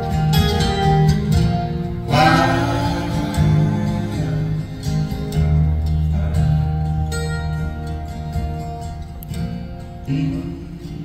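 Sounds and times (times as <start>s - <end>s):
acoustic guitar: 0.0s - 11.0s
woman singing: 2.1s - 4.5s.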